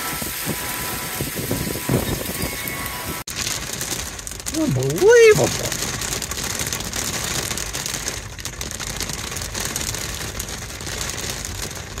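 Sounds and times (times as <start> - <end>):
hail and rain on car: 2.7 - 12.0.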